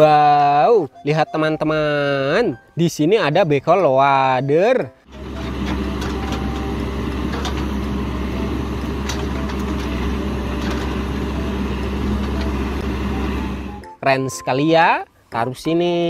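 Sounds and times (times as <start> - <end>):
backhoe diesel engine running: 5.1 - 13.8.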